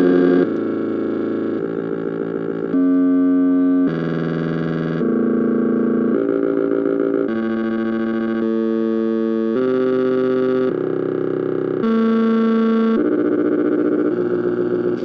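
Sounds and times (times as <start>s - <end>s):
electronic multi-pitch tones: 0.0s - 15.0s.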